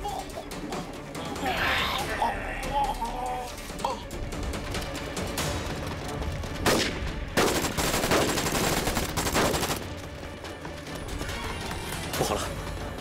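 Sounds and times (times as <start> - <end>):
background music: 0.0 - 13.0
rapid gunfire: 6.6 - 10.1.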